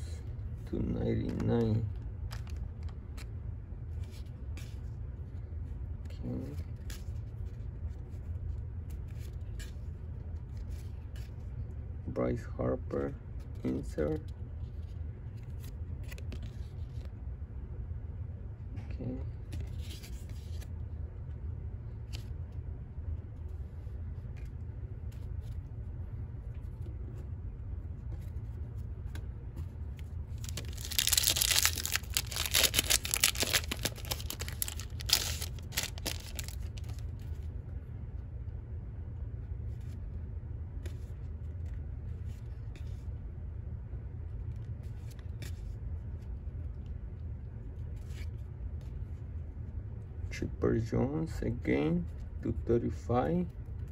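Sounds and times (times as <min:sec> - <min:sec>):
wrapper tearing and crinkling: 0:30.3 - 0:37.0.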